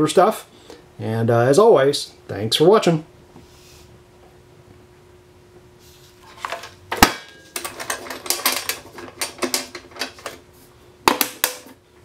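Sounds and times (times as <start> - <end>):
rattling clicks of case handling: 7.6 - 10.4.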